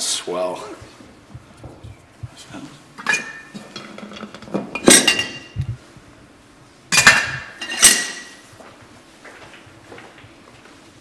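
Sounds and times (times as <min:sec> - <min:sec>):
glassware and dishes clinking: 0:03.0 - 0:05.7, 0:06.9 - 0:08.4.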